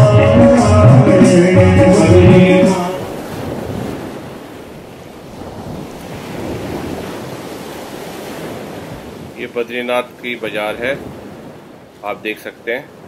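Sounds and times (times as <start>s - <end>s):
music with singing: 0.0s - 3.1s.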